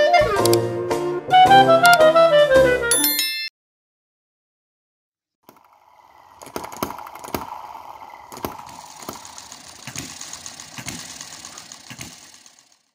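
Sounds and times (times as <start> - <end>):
small model engine running: 5.4 - 12.9
sharp engine knocks: 6.4 - 12.7.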